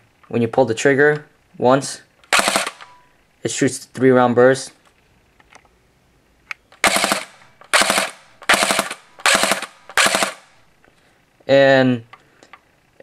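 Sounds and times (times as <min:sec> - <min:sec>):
airsoft gun firing bursts: 0:02.3 - 0:02.9, 0:06.8 - 0:10.6.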